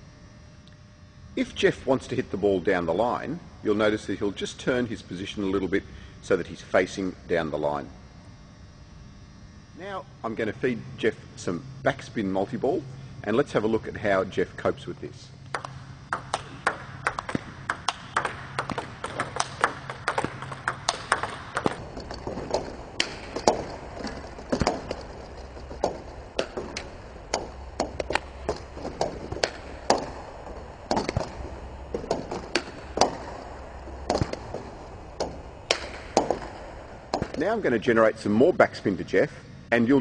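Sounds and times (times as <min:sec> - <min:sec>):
table tennis balls clicking: 0:15.4 - 0:37.5.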